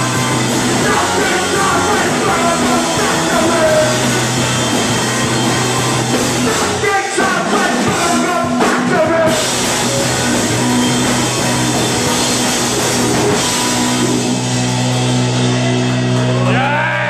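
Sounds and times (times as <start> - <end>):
drum kit: 0.0 - 16.8
electric guitar: 0.0 - 17.0
person singing: 0.6 - 4.1, 6.4 - 9.5.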